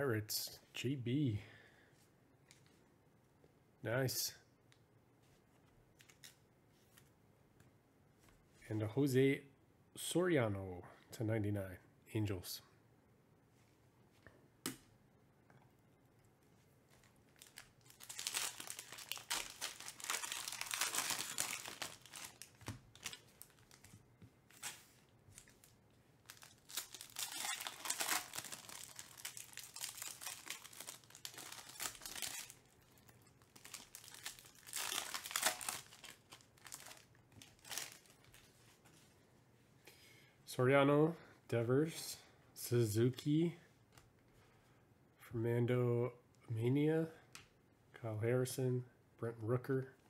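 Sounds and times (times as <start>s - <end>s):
card wrappers crinkling and tearing: 17.3s - 38.6s.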